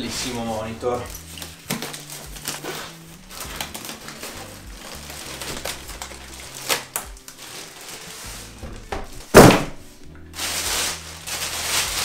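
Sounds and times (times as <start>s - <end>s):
background music: 0.0s - 12.0s
plastic wrapping crinkling: 0.0s - 12.0s.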